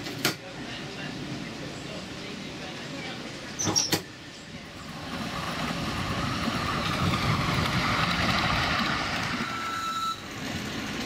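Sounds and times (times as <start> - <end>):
miniature train wheels rumbling on rails: 4.7 - 11.0
thin wheel squeal: 9.4 - 10.3.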